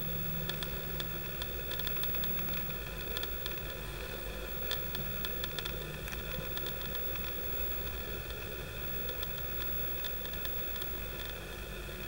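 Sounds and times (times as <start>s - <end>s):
faint high whine: 0.0s - 5.7s
small scattered ticks: 0.0s - 11.5s
camera hiss and hum: 0.0s - 12.0s.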